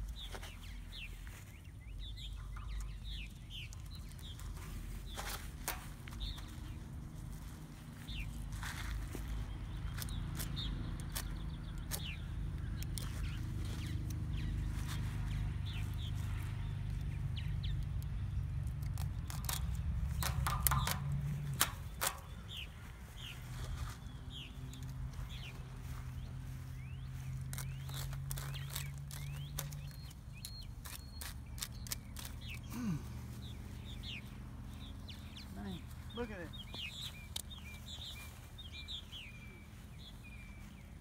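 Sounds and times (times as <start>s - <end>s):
chirping bird calls: 0.0s - 6.8s, 7.4s - 41.0s
scissors snipping plastic netting: 9.9s - 13.4s, 18.6s - 22.5s, 27.4s - 32.8s
sharp clicks: 9.9s - 13.4s, 17.0s - 22.6s, 27.5s - 32.7s, 36.2s - 37.8s.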